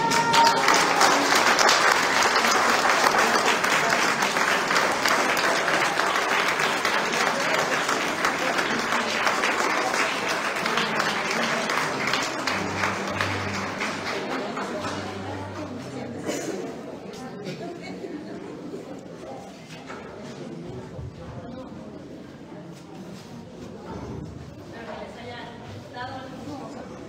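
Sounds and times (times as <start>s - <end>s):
audience applauding: 0.0s - 16.1s.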